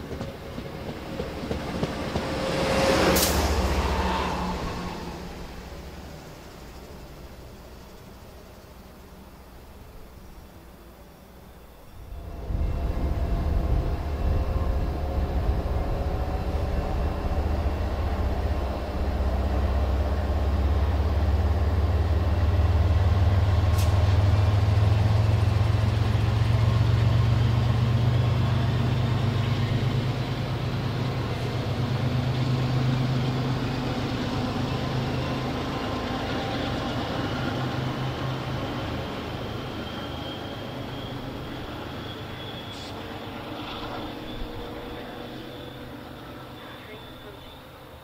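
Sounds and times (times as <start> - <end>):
diesel locomotive engine drone: 0.0 - 48.0
faint rising whines: 3.4 - 48.0
sharp click: 23.7 - 24.0.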